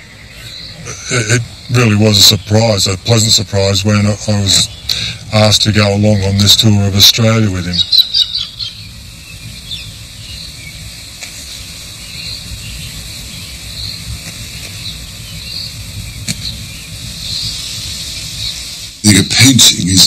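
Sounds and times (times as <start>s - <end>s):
insects chirping: 0.0s - 20.0s
low rumble: 0.0s - 20.0s.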